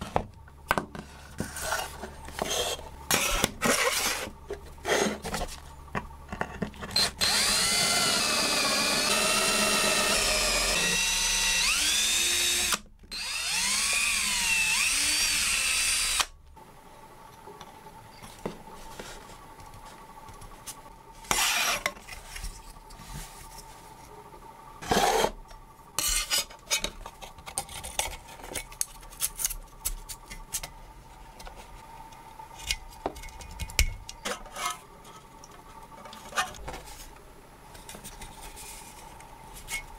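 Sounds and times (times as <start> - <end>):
power tool motor running: 7.0 - 16.3.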